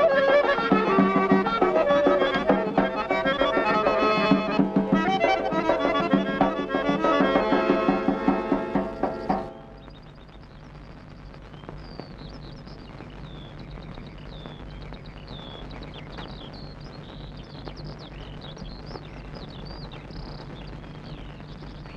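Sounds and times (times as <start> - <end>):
accordion folk music: 0.0 - 9.8
small birds chirping: 0.0 - 21.9.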